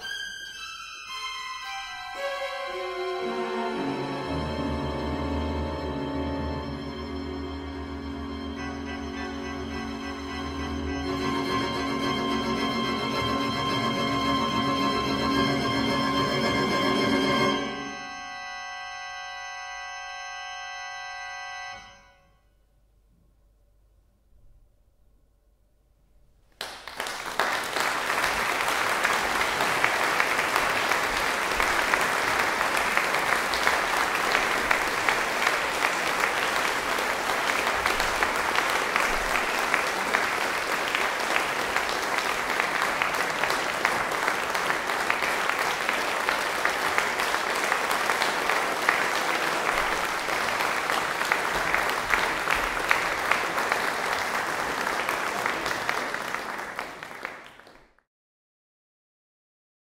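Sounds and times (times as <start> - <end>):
audience applauding: 2.2 - 18.1, 26.6 - 58.0.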